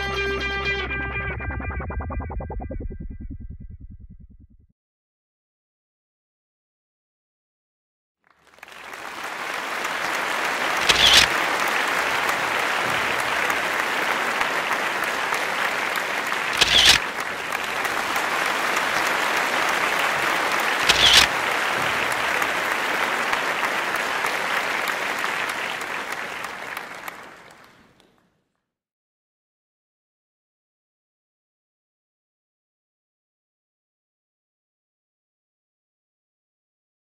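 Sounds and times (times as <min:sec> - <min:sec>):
crowd applauding: 0:08.3 - 0:28.3
sharp clapping accents: 0:08.3 - 0:28.3.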